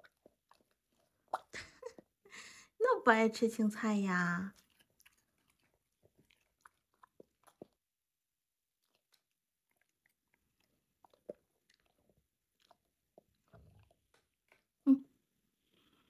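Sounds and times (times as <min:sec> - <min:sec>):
dog chewing carrot crunches: 0:04.5 - 0:07.8.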